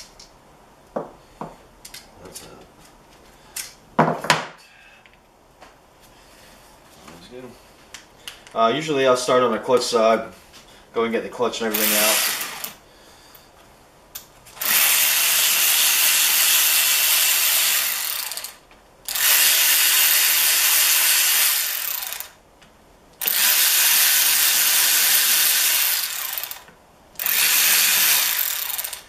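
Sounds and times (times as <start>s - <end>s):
cordless power tool spinning bolts: 11.7s - 12.8s, 14.6s - 22.4s, 23.2s - 29.0s.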